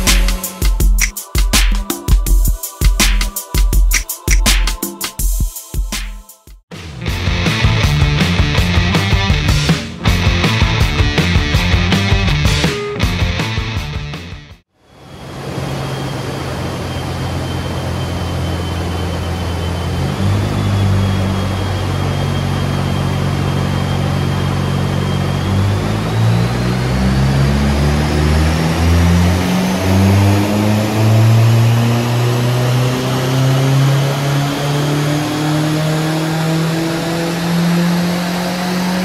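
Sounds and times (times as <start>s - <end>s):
high whine: 0.0s - 4.9s, 6.7s - 39.0s
car engine revving: 15.5s - 39.0s.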